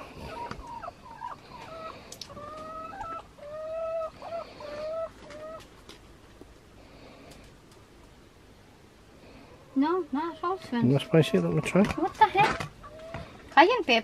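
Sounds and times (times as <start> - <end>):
hens clucking: 0.0 - 6.4, 9.5 - 14.0.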